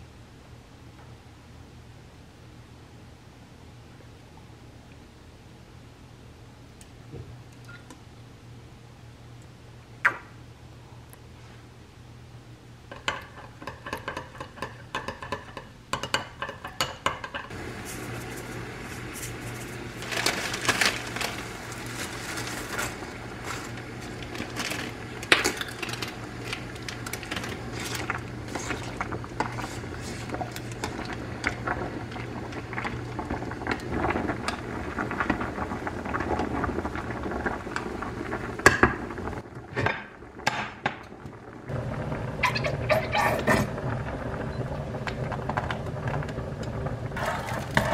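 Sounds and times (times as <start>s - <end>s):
water boiling in pot: 12.8s - 47.9s.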